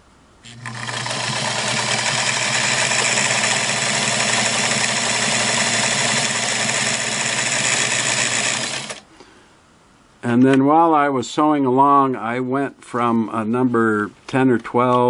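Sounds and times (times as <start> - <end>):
sewing machine motor hum: 0.4 - 9.0.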